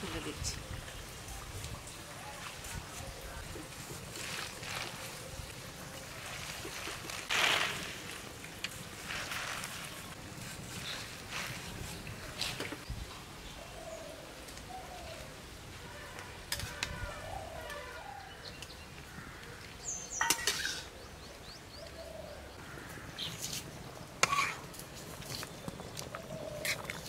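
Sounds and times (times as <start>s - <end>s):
faint birds calling: 13.4s - 24.6s, 25.2s - 27.0s
metal spatula stirring in wok: 24.2s - 24.7s.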